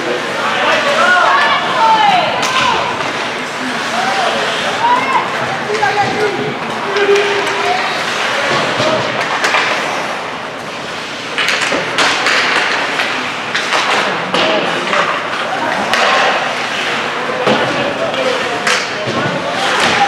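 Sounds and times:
skates scraping ice: 0.0s - 20.0s
sticks knocking puck: 11.3s - 16.4s.

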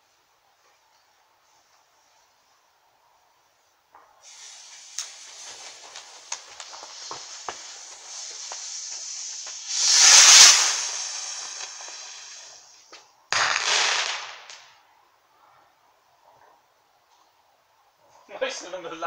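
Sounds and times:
firework rocket whoosh: 4.2s - 14.7s
fizzing crackling fuse: 4.2s - 14.8s.

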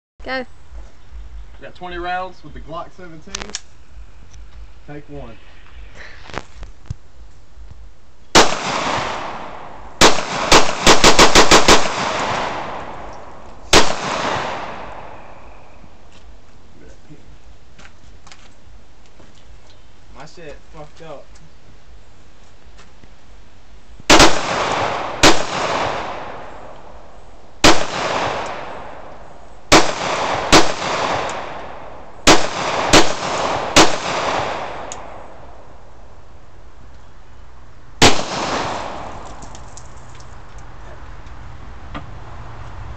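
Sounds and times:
pistol shots: 8.3s - 15.4s, 24.1s - 26.8s, 27.6s - 29.1s, 29.7s - 35.3s, 38.0s - 39.4s
gunshot echo: 8.4s - 15.7s, 24.1s - 26.8s, 27.6s - 29.1s, 29.7s - 35.2s, 38.0s - 39.3s.

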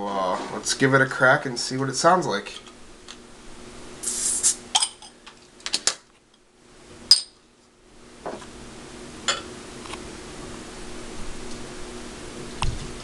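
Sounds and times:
hiss of escaping carbonation: 4.0s - 4.7s.

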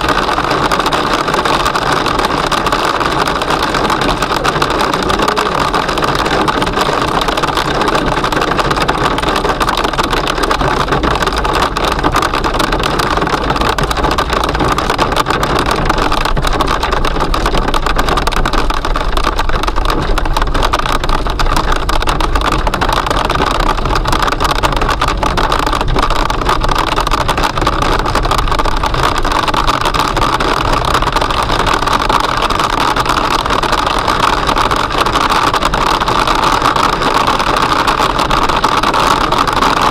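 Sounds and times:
car road noise: 0.0s - 39.9s
hail and rain on car roof: 0.0s - 39.9s.

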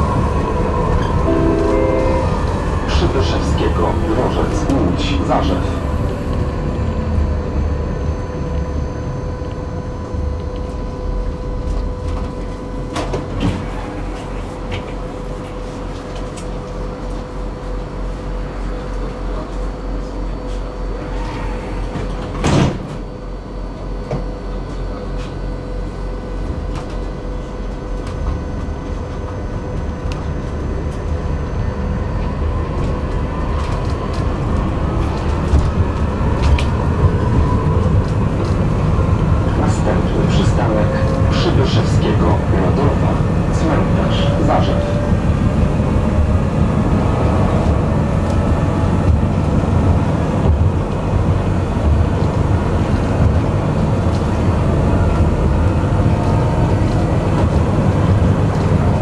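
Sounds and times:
low rumble: 0.0s - 4.9s
tram motor whine: 0.0s - 59.0s
electrical hum with held tones: 0.1s - 13.1s, 34.3s - 59.0s.

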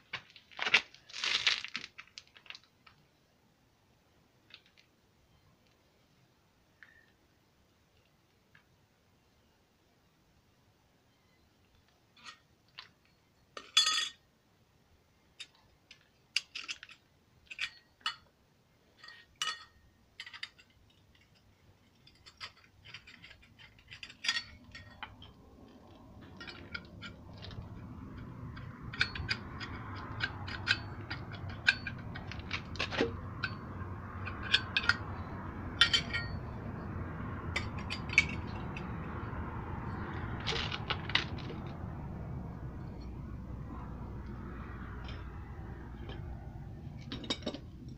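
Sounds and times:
metal tools clinking: 13.6s - 14.2s, 19.0s - 41.8s, 42.4s - 47.9s
low rumbling noise: 24.6s - 47.9s.

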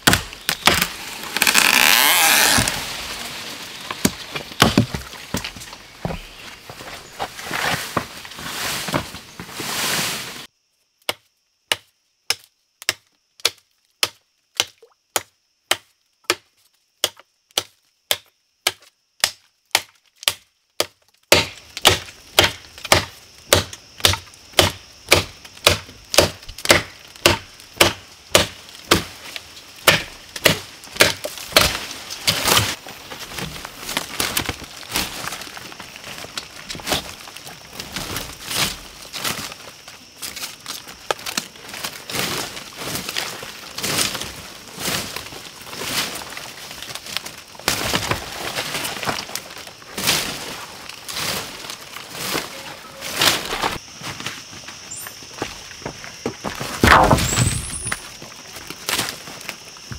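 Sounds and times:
blade chopping into wood: 0.0s - 2.8s, 17.0s - 29.1s, 29.8s - 32.8s, 56.8s - 58.0s
wood cracking and splintering: 0.0s - 6.2s, 21.3s - 53.8s, 56.4s - 59.9s.

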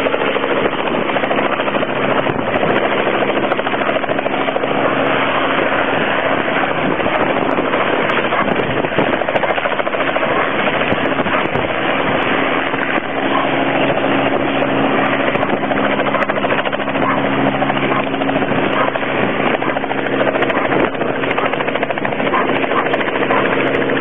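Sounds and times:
helicopter engine hum: 0.0s - 24.0s
helicopter rotor chop: 0.0s - 24.0s.

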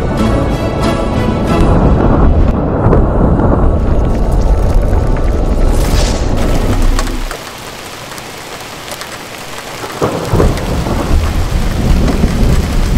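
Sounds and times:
heavy rain: 0.3s - 12.9s
rolling thunder: 1.5s - 7.5s, 9.8s - 12.9s.

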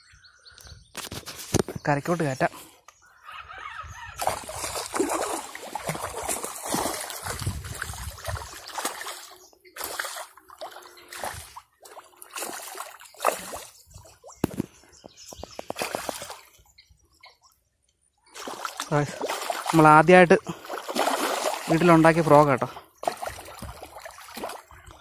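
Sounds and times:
fish splashing in water: 4.2s - 14.6s, 15.6s - 16.6s, 18.3s - 24.8s.

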